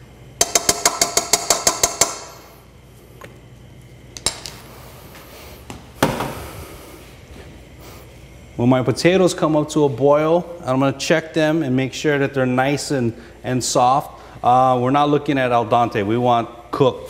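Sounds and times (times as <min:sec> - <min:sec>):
dull knock: 0:06.0 - 0:06.4.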